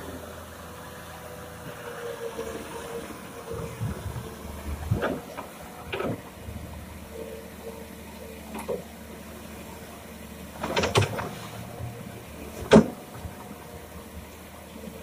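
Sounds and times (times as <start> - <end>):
excavator engine running: 0.0 - 15.0.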